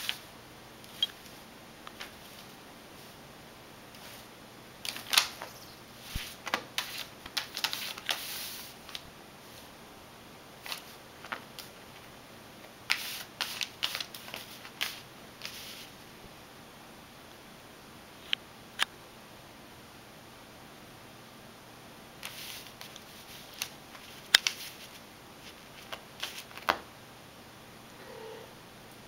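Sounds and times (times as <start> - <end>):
paper crinkling and rustling: 4.0 - 9.0, 12.9 - 15.9, 22.2 - 26.8.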